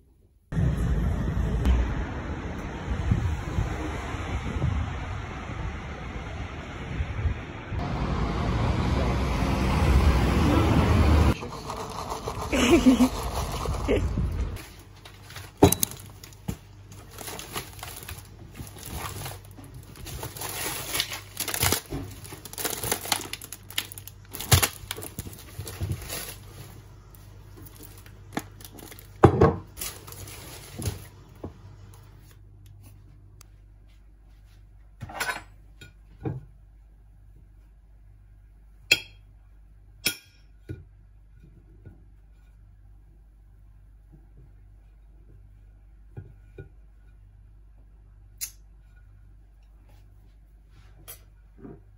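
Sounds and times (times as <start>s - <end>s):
packaging rustling and crinkling: 14.6s - 31.2s.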